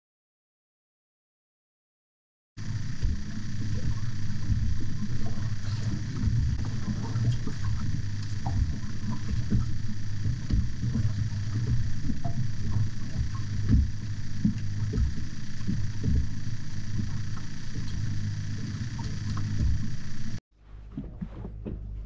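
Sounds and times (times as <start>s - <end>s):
boat engine humming: 2.6s - 22.0s
low thumps: 2.6s - 22.0s.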